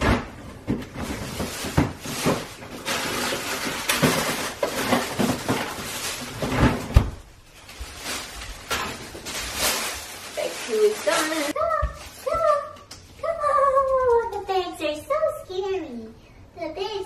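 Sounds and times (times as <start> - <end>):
packages knocking: 0.0 - 9.9
plastic bag rustling: 0.0 - 12.7.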